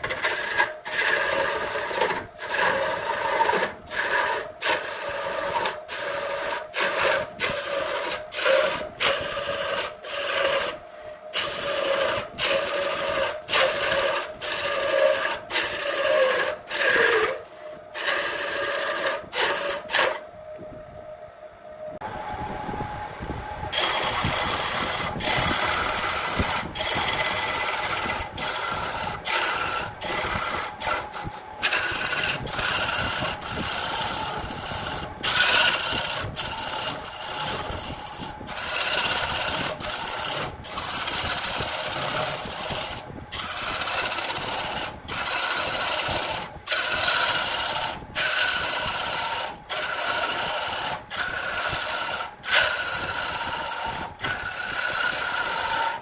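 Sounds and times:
lathe tool cutting wood: 0.0s - 20.2s, 23.7s - 56.0s
steady lathe tone: 0.0s - 56.0s.

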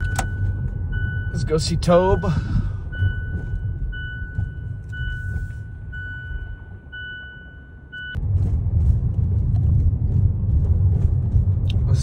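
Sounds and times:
car warning chime beeping: 0.0s - 8.2s
car low rumble: 0.0s - 12.0s.

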